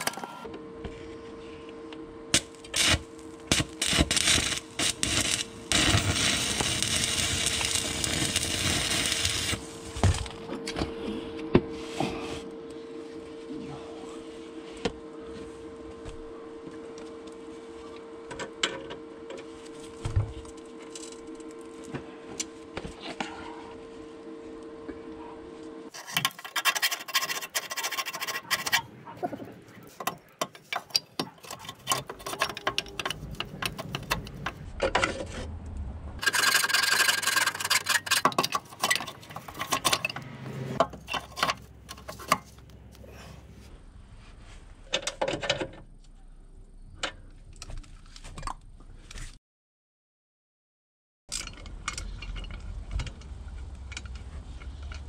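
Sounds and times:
steady hum: 0.0s - 47.4s
metal being filed by hand: 26.0s - 28.9s.

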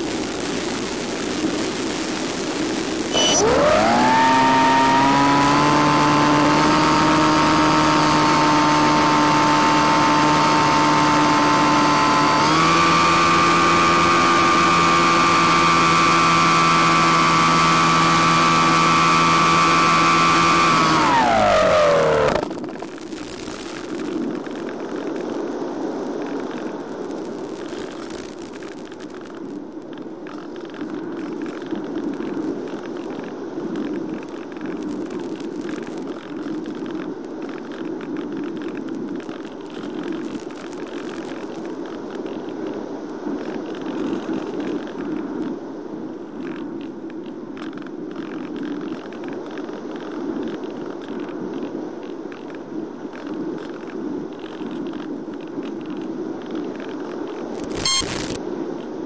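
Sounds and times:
radio static crackles: 0.0s - 42.5s, 57.4s - 58.4s.

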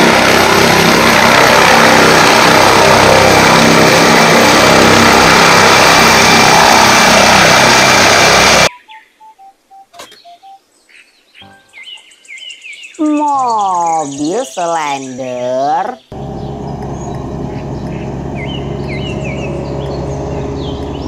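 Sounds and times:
helicopter engine and rotor: 0.0s - 8.7s, 16.1s - 21.0s
descending electronic beeps: 1.1s - 10.6s.

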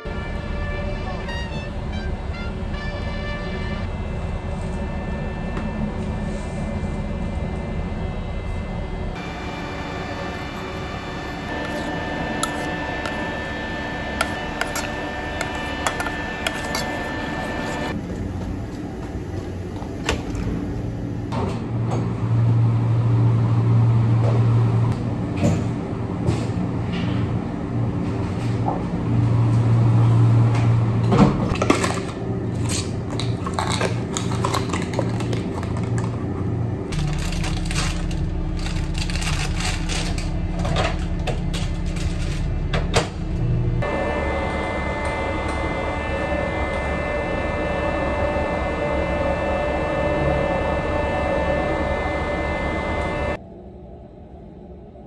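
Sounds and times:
steady machinery hum: 0.0s - 55.0s
metal spoon scraping steel pot: 14.2s - 17.9s
plastic packaging crinkling: 33.2s - 36.1s, 37.0s - 40.3s.

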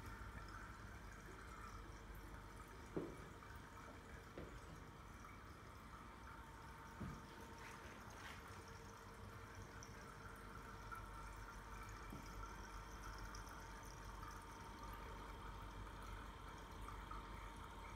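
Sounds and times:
aquarium water trickling: 0.0s - 17.9s
steady hum: 0.0s - 17.9s
soft knock: 2.9s - 3.2s.

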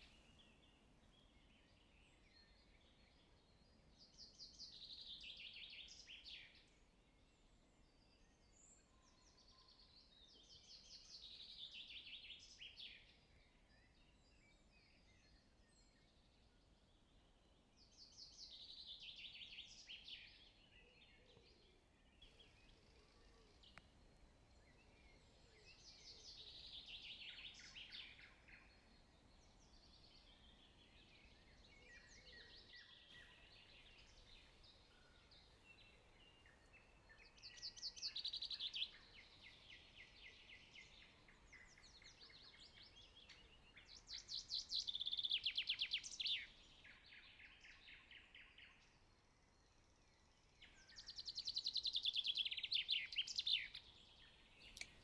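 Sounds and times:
low steady hiss: 0.0s - 55.0s
trilled birdsong: 0.0s - 55.0s.

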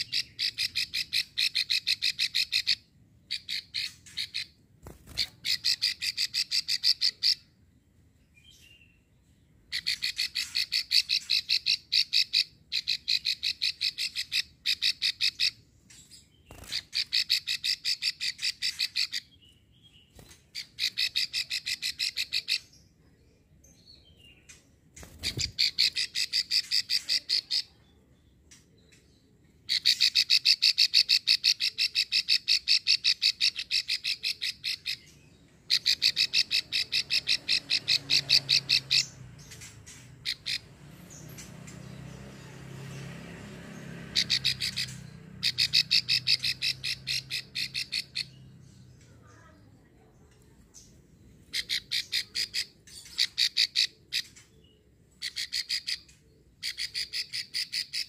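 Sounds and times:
bird rasping clicking call: 44.2s - 48.4s.

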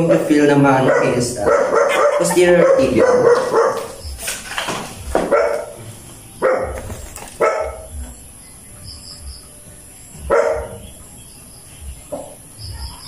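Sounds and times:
dog barking: 0.8s - 4.0s, 5.2s - 5.8s, 6.4s - 8.0s, 10.3s - 10.9s.

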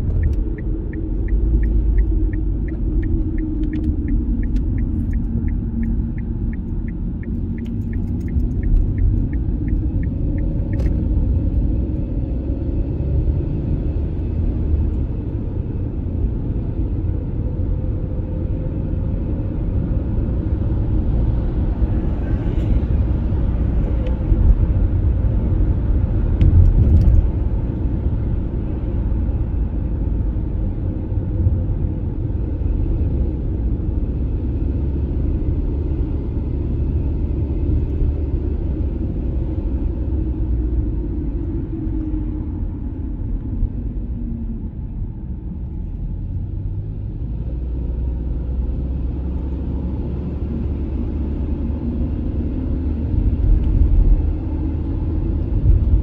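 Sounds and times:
turn signal ticking: 0.0s - 12.0s
car cabin road and engine rumble: 0.0s - 56.0s.

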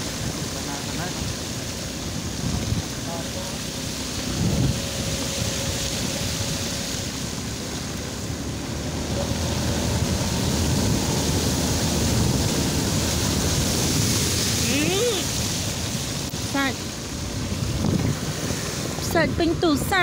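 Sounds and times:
water rushing from tyres: 0.0s - 20.0s.

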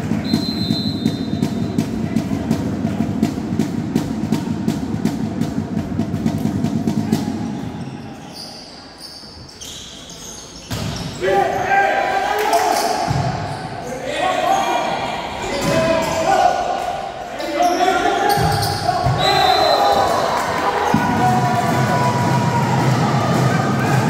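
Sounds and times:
drums beating fast rhythm: 0.0s - 7.7s, 20.8s - 24.0s
continuous din: 0.0s - 7.8s, 18.3s - 24.0s.

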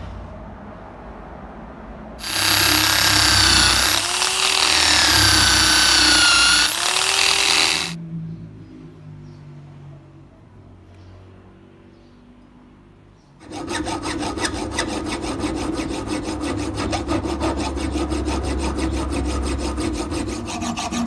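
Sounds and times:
power tool wire brush on metal: 2.2s - 8.0s.

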